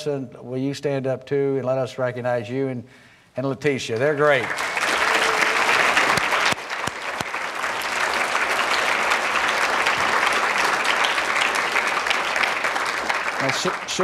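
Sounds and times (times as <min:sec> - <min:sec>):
audience applauding: 0:04.2 - 0:14.0.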